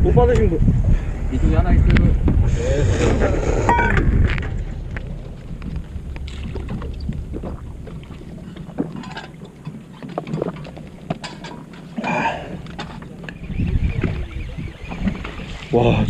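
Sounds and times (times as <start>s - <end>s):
wind noise: 0.0s - 9.3s, 12.5s - 16.0s
boat engine rumble: 0.0s - 16.0s
water noise: 0.0s - 16.0s.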